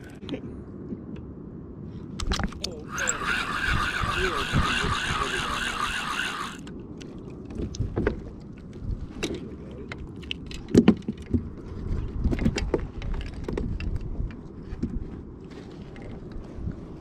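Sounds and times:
fishing gear clicking and rattling: 2.2 - 6.8.

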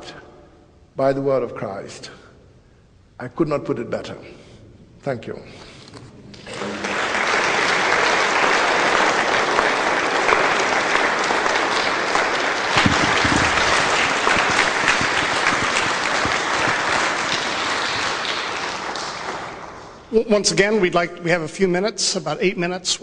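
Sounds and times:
audience applauding: 6.3 - 20.1.

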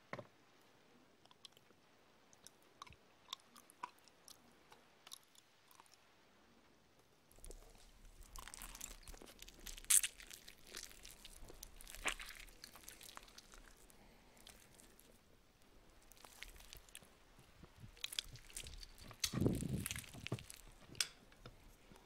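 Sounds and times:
crunchy chewing of food: 1.1 - 6.2, 7.3 - 22.0.

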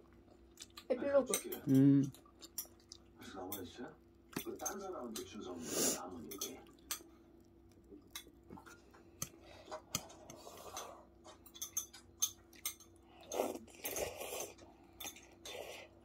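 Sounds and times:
metal chopsticks clinking on bowl: 1.3 - 2.7, 6.2 - 7.1, 11.5 - 12.9
eating noises: 1.7 - 16.0.

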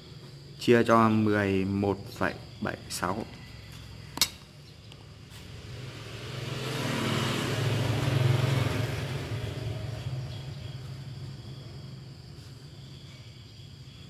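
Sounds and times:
vehicle passing by: 5.1 - 12.7.

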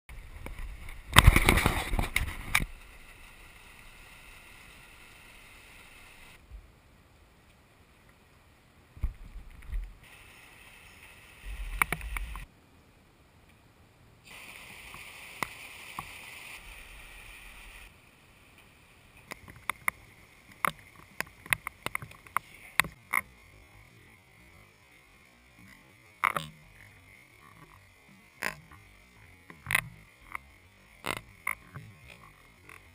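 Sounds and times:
muffled storm noise: 0.1 - 27.5
loud crackling and clicks: 0.4 - 2.9, 11.5 - 12.5.

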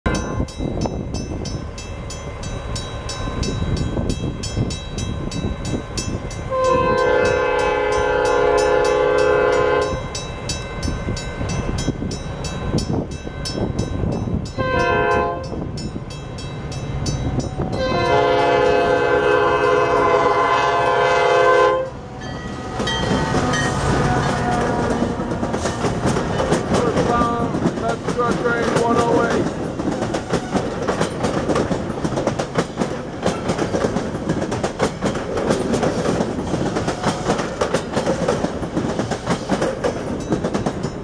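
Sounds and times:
crossing warning bell ringing: 0.1 - 38.0, 39.0 - 41.0
low rumble of approaching train: 0.1 - 41.0
train air horn blasts: 6.5 - 10.2, 14.6 - 15.6, 17.6 - 25.7.

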